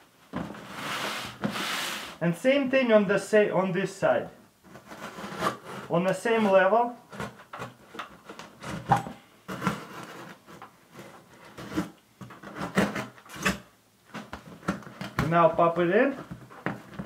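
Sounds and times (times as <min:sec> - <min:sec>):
knife cutting cardboard: 0:04.7 - 0:05.9, 0:07.1 - 0:13.6.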